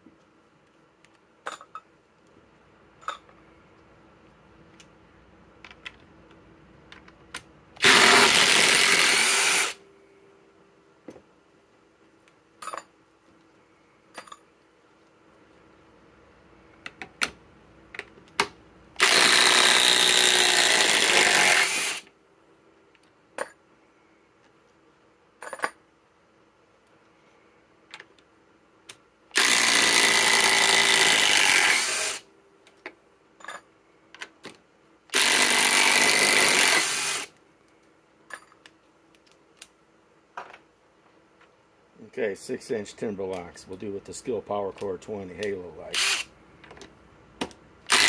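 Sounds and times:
impact drivers hammering screws: 7.8 - 9.8, 19.0 - 22.0, 29.4 - 32.2, 35.1 - 37.3.

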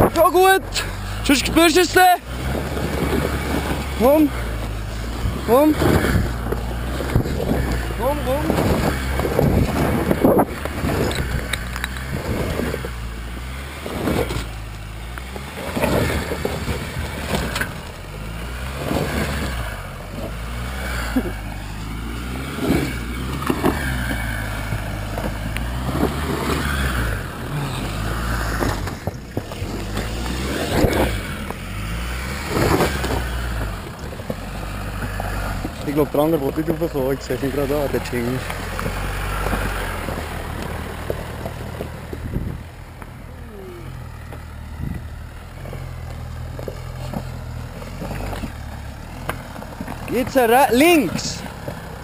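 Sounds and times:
diesel engine low drone: 0.0 - 52.0
wind gusts on microphone: 8.4 - 11.5, 42.2 - 42.7.

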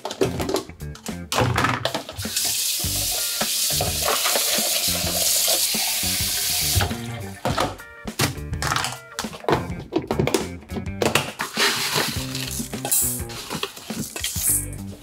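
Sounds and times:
food sizzling in a pan: 2.3 - 6.8.

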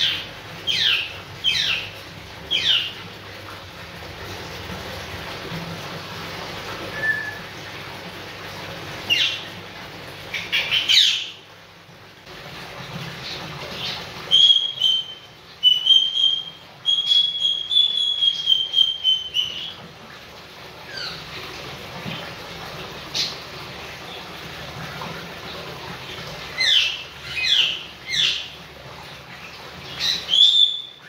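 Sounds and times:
parrot squawking and whistling: 6.9 - 7.5, 14.3 - 19.7, 30.0 - 31.0.

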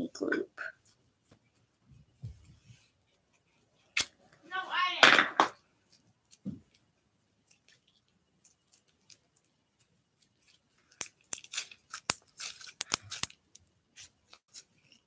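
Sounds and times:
plastic clicks and crinkles: 5.8 - 15.0.

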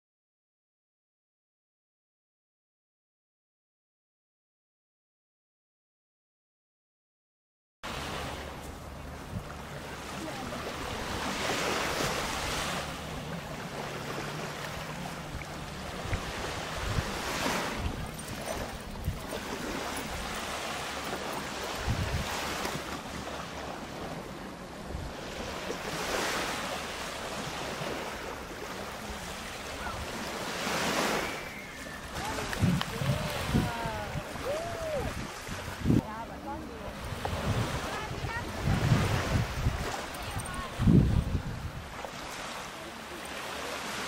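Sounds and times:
waves washing onto beach: 7.9 - 44.0
wind buffeting microphone: 14.8 - 20.6, 21.6 - 22.9, 30.9 - 36.2, 37.0 - 42.1.

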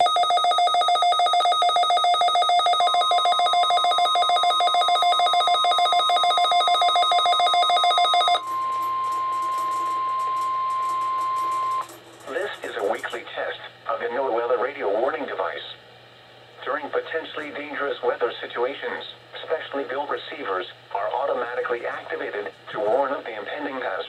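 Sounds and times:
steady alarm tone from radio: 0.0 - 11.9
weather radio pulsing alert beeps: 0.0 - 11.9.

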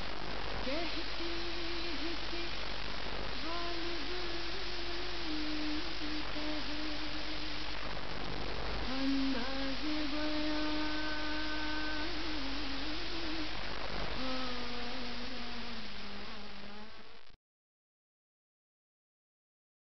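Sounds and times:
steady hiss: 0.0 - 17.4
person humming a slow melody: 0.6 - 2.6, 3.3 - 7.6, 8.8 - 17.0.

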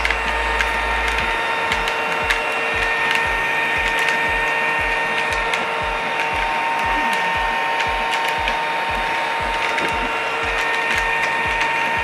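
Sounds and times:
toy vacuum cleaner running: 0.0 - 12.0.

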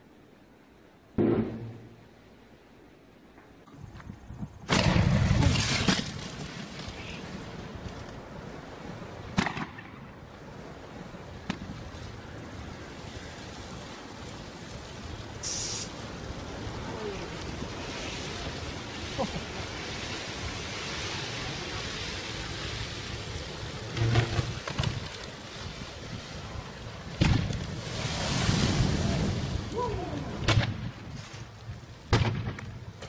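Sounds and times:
sharp crack: 1.2 - 2.2, 4.6 - 7.2, 9.3 - 10.2, 11.4 - 11.8, 27.1 - 28.7, 29.7 - 31.5, 32.1 - 33.0
wind on microphone: 10.0 - 32.0
transformer fire rushing hiss: 10.4 - 32.6.

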